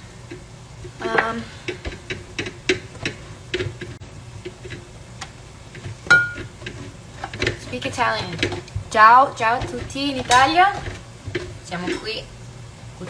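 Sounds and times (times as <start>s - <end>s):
low steady hum: 0.0s - 13.0s
kitchen utensils knocking: 6.1s - 12.2s.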